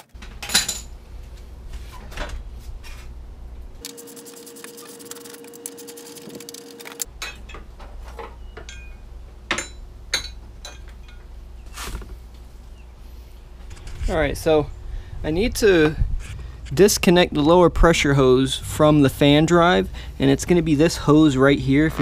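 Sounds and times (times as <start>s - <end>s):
steady hum: 0.2s - 8.0s
metal tools clattering: 0.4s - 0.9s, 7.2s - 11.3s.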